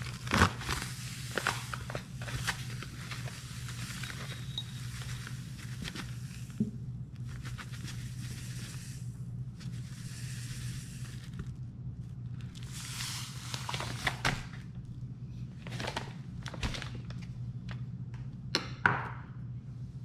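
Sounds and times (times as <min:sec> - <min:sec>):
paper bag crinkling: 0:00.0 - 0:06.6, 0:07.2 - 0:09.0, 0:12.4 - 0:14.7, 0:15.6 - 0:17.3
steady low hum: 0:00.0 - 0:20.0
sugar hissing into glass bowl: 0:03.3 - 0:06.6.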